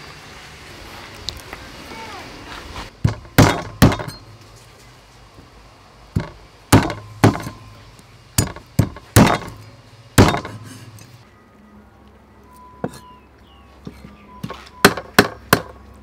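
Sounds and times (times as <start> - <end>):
cleaver chopping on wooden block: 3.0 - 4.2, 6.2 - 7.6, 14.8 - 15.8.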